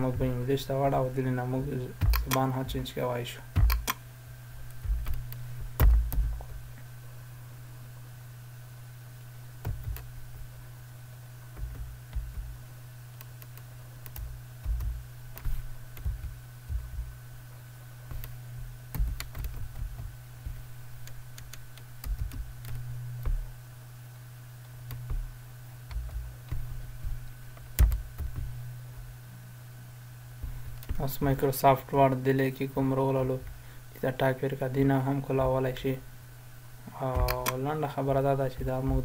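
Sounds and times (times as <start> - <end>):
steady low hum: 0.0 - 39.0
computer keyboard typing: 2.0 - 2.5, 3.6 - 4.0, 9.6 - 10.1, 13.2 - 17.1, 18.1 - 23.5, 25.9 - 28.6.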